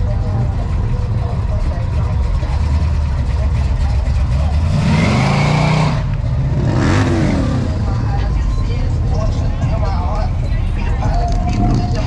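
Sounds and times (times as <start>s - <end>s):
car engine revving: 0.0s - 8.2s
low engine rumble: 0.0s - 12.0s.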